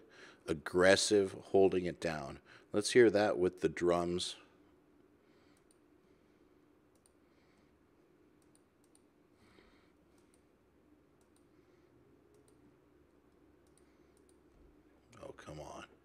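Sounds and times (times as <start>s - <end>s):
faint computer mouse clicks: 5.6s - 5.8s, 6.9s - 7.2s, 8.4s - 9.1s, 10.1s - 10.5s, 11.2s - 11.5s, 12.3s - 12.6s, 13.2s - 14.5s.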